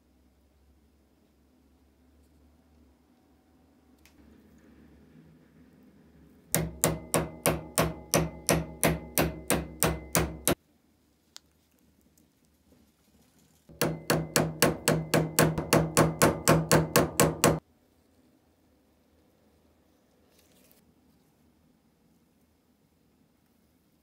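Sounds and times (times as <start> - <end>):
hammer clinking on metal: 6.6 - 10.6, 13.7 - 17.6.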